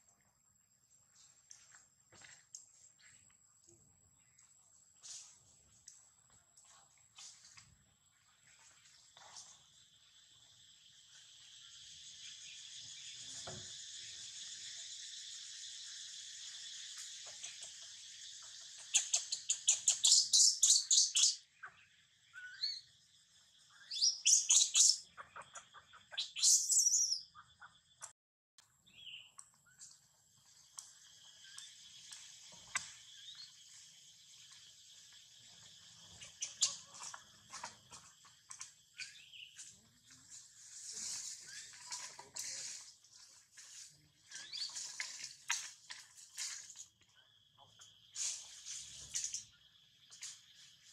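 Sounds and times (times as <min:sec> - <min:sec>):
high insect drone: 0:09.4 - 0:19.5
high-pitched chirping calls: 0:11.2 - 0:22.9, 0:23.6 - 0:28.1, 0:35.6 - 0:42.8, 0:44.2 - 0:45.7.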